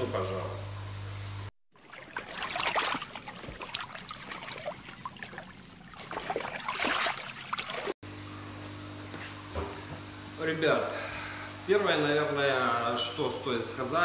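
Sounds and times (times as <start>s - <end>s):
water splashing and trickling: 1.7s - 8.0s.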